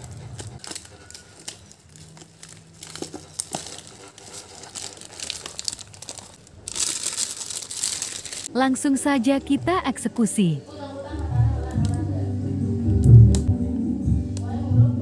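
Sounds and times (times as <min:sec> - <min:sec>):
plastic wrapping crinkling: 0:00.0 - 0:08.5.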